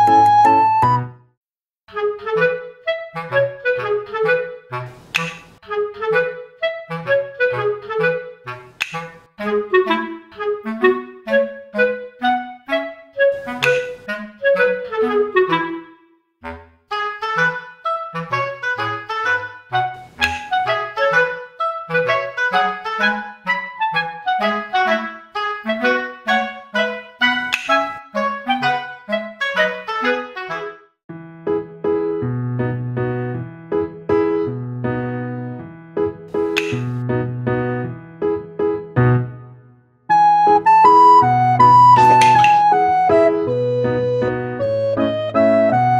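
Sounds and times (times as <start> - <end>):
sharp click: 5.0 - 5.6, 8.8 - 9.2, 13.4 - 14.0, 20.1 - 20.6, 27.5 - 28.0, 36.4 - 37.0, 42.0 - 42.6
bouncy music with plodding bass: 40.1 - 45.9.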